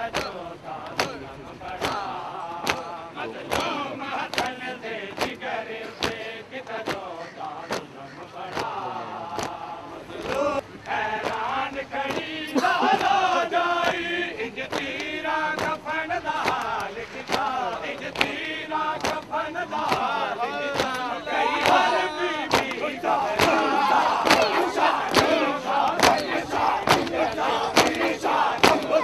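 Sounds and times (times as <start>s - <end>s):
sharp slaps: 0.0s - 4.6s, 5.2s - 5.4s, 6.0s - 7.9s, 8.5s - 9.6s, 10.2s - 12.3s, 14.7s - 15.8s, 16.4s - 18.4s, 19.0s - 20.1s, 20.7s - 21.9s, 22.5s - 29.0s
crowd of men chanting: 0.0s - 29.0s.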